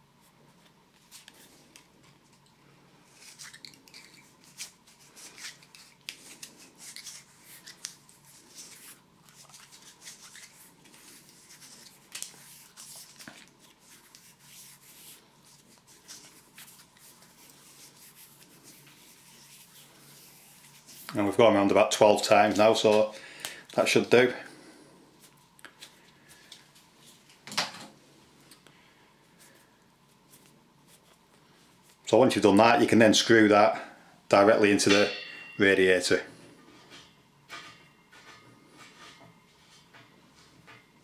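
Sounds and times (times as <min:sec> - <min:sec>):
tape crackling and rubbing: 0:00.6 - 0:21.4.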